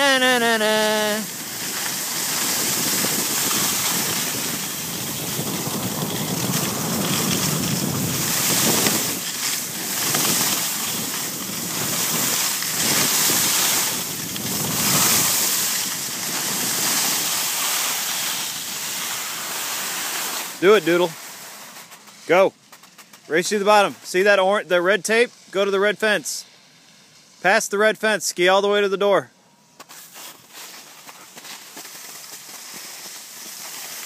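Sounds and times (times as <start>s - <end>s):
skis sliding on snow: 0.0s - 26.4s, 29.8s - 34.0s
wind rushing over microphone: 1.4s - 17.3s.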